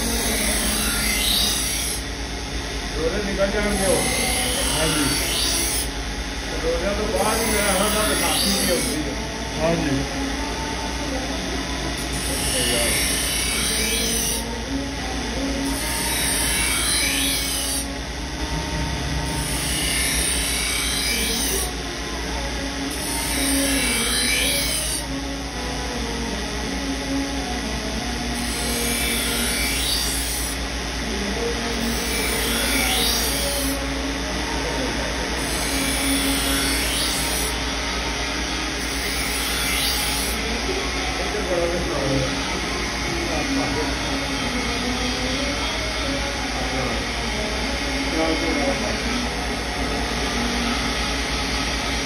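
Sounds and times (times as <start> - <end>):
knife grinding on wheel: 0.0 - 2.0, 3.6 - 5.9, 7.2 - 9.1, 12.0 - 14.5, 15.6 - 17.9, 19.1 - 21.8, 22.9 - 25.1, 28.4 - 30.6, 31.8 - 33.8, 35.4 - 37.6, 38.8 - 40.4
grinding wheel humming: 0.0 - 52.0.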